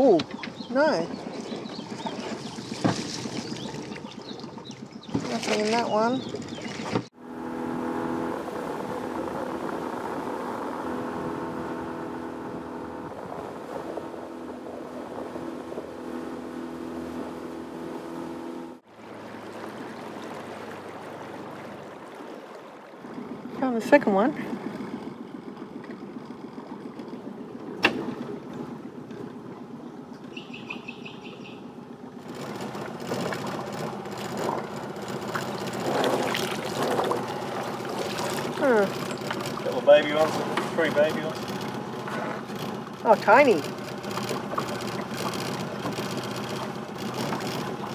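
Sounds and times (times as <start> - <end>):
outboard motor running: 0.0 - 47.9
bird chirps: 0.2 - 7.0, 29.8 - 31.8
splashing and rattling crab pot: 1.1 - 7.1, 32.2 - 47.9.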